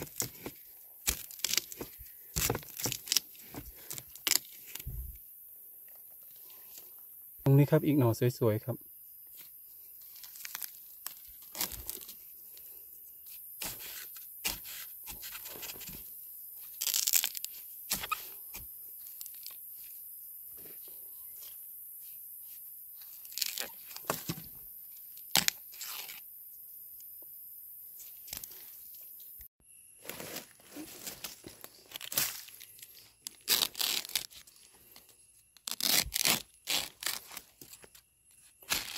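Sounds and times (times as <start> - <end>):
machete cutting bamboo: 0.0 - 4.8, 13.6 - 16.0, 16.8 - 18.7, 25.3 - 26.2.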